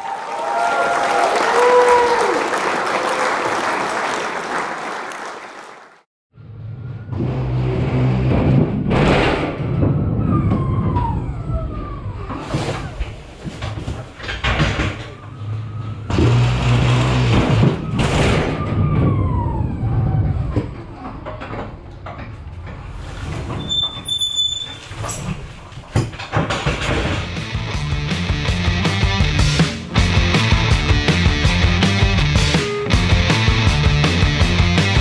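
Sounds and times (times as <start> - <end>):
bangs and clattering on trailer floor: 8.2 - 10.7, 13.4 - 15.2, 16.1 - 19.2, 25.1 - 27.4.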